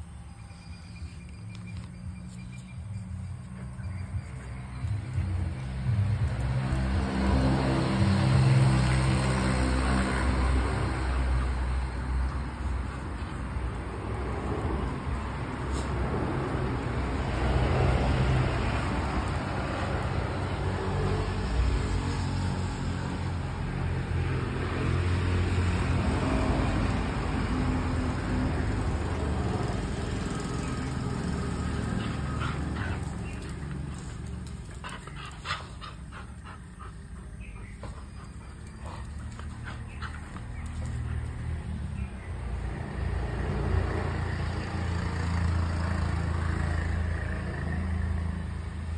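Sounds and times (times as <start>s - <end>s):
dogs play-fighting: 1.7s - 21.9s, 28.4s - 42.1s.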